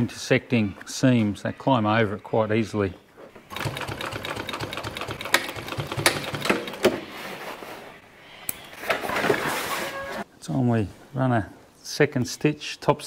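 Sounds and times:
sewing machine clattering: 3.5 - 6.9.

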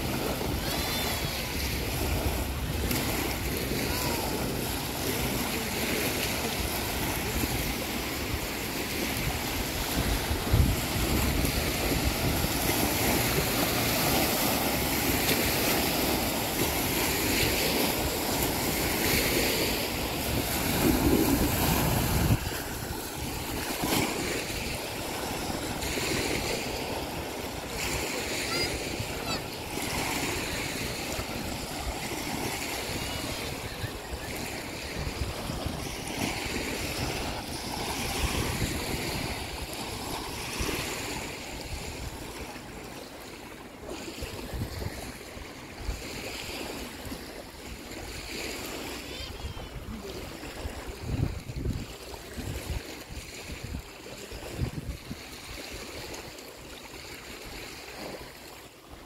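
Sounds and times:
wind buffeting microphone: 0.0 - 42.8, 44.2 - 47.3, 49.3 - 56.3
small waves washing on shore: 0.0 - 59.0.

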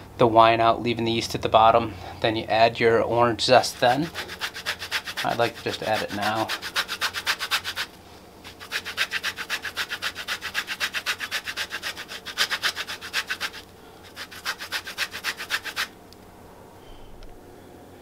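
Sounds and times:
orange peel rasping on grater: 3.6 - 16.0.

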